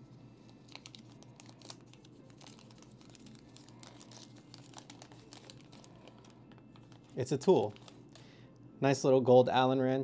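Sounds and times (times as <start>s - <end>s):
paper crinkling and rustling: 0.5s - 8.3s.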